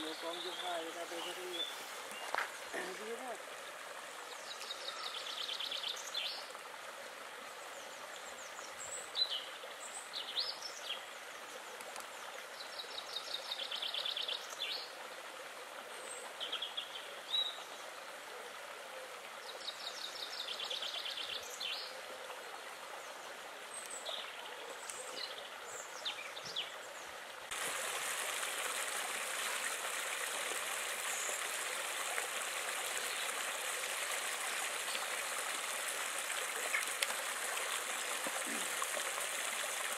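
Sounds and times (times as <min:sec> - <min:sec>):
songbirds trilling and chirping: 0:00.0 - 0:06.6, 0:28.3 - 0:39.9
water babbling over stones: 0:00.0 - 0:39.9
water hissing: 0:27.5 - 0:39.9.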